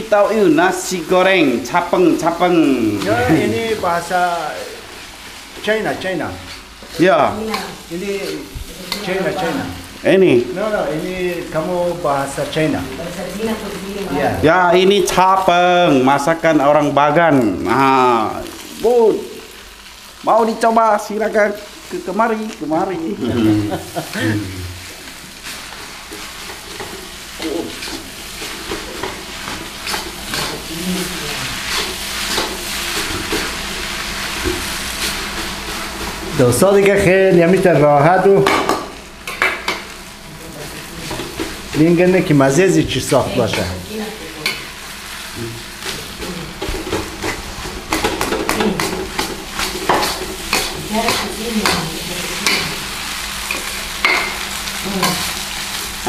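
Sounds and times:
rice sizzling in a wok: 0.0s - 56.0s
spatula scraping a wok: 4.8s - 10.0s, 23.4s - 36.4s, 43.5s - 56.0s
spatula scraping a metal pan: 25.4s - 33.6s, 46.6s - 52.8s.

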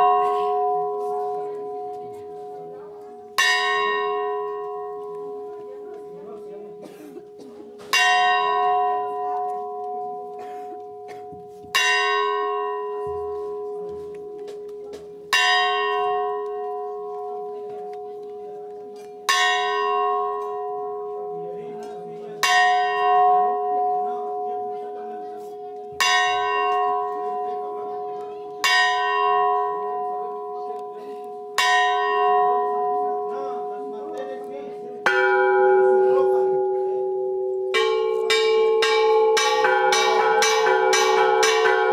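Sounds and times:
bell tolling: 35.0s - 41.9s.

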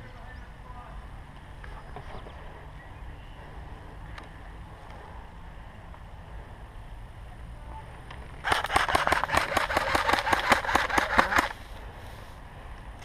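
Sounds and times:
airsoft rifle full-auto burst: 8.4s - 11.6s.

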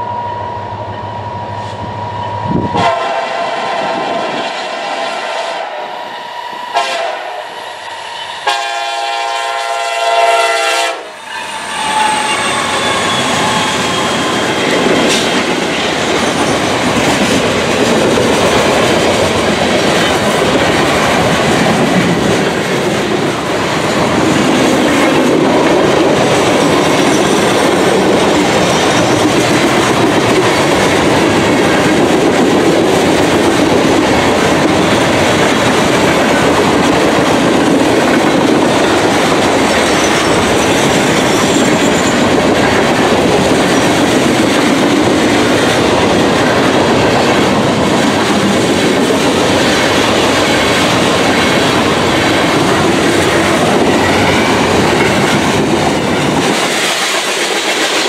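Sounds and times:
train wheels on rails: 0.0s - 58.0s
clickety-clack over rail joints: 13.3s - 58.0s.

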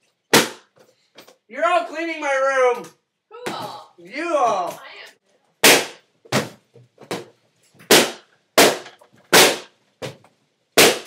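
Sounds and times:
balloons popping: 0.3s - 0.8s, 5.6s - 10.2s, 10.8s - 11.0s.

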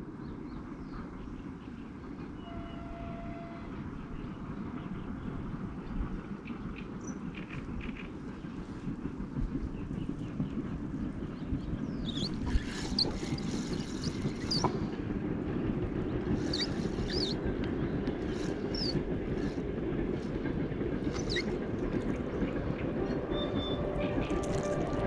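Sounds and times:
wind on microphone: 2.6s - 25.0s
bird chirps: 16.4s - 17.4s, 18.3s - 19.5s, 21.1s - 21.6s.

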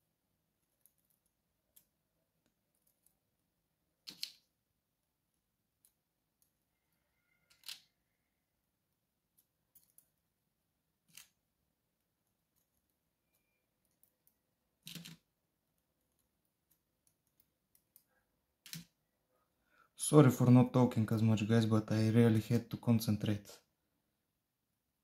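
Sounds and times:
faint metallic clicks and scrapes: 5.8s - 8.1s, 9.3s - 10.2s, 12.2s - 15.3s.

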